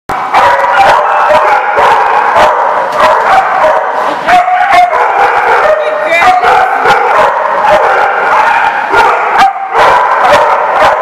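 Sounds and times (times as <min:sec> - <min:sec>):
dogs barking: 0:00.1 - 0:11.0.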